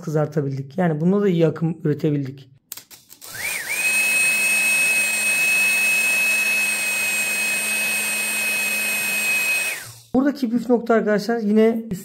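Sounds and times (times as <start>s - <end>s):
electric motors high-pitched whine: 3.2s - 10.1s.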